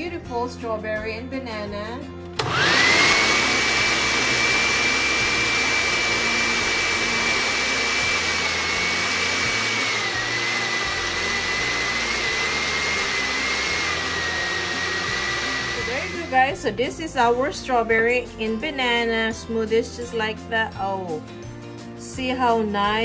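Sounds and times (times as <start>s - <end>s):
electric blender running: 2.4s - 16.6s.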